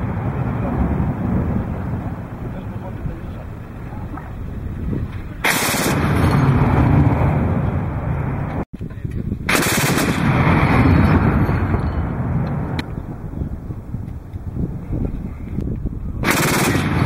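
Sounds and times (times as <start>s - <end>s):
autocannon automatic fire: 5.4s - 7.6s, 9.5s - 12.4s, 16.2s - 17.0s.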